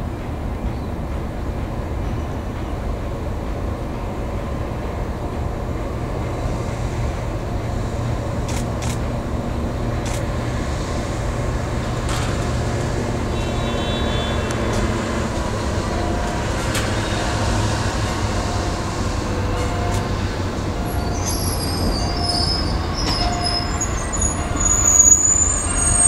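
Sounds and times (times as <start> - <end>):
high wheel squeal: 20.8 - 26.0.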